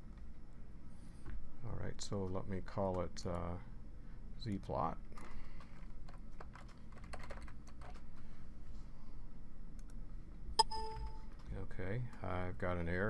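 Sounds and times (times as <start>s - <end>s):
keyboard typing: 6.3s - 8.0s, 10.6s - 11.4s.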